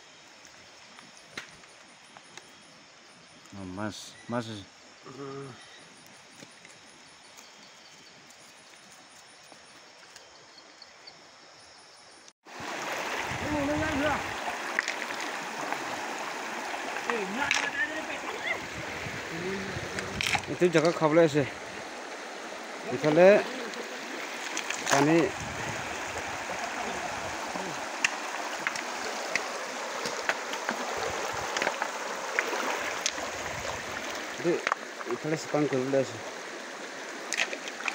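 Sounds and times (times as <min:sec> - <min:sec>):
insects chirping softly: 0:00.0 - 0:37.9
small splashes: 0:12.5 - 0:37.9
stream rushing over rocks: 0:12.5 - 0:37.9.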